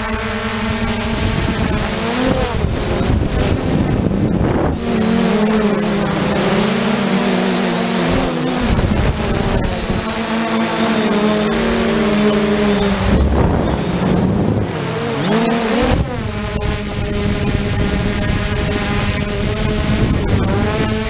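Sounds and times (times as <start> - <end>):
drone propellers humming: 0.0 - 21.0
rush of noise: 8.7 - 18.6.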